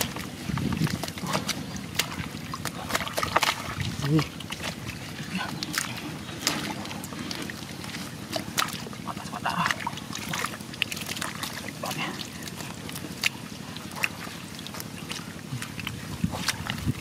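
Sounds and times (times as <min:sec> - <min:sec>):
small water splashes: 0:00.0 - 0:17.0
steady low rumble: 0:00.0 - 0:17.0
wet squelches in mud: 0:00.0 - 0:17.0.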